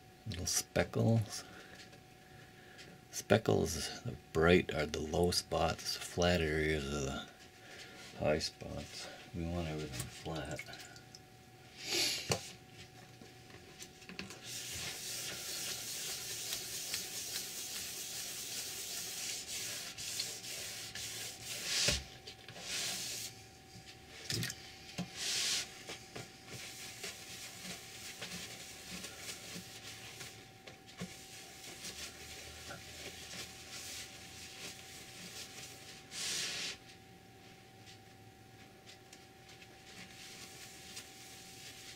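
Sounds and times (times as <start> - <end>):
sandpaper rubbing: 14.4 - 22.0, 22.6 - 23.4.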